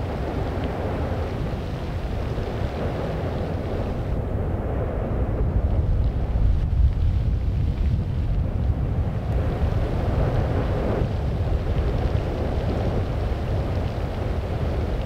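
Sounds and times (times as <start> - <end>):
low steady rumble: 0.0 - 15.0
wind buffeting microphone: 0.0 - 15.0.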